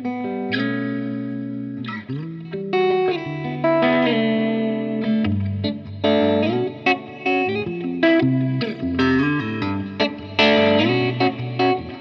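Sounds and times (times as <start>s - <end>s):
overdriven electric guitar chords: 0.0s - 12.0s.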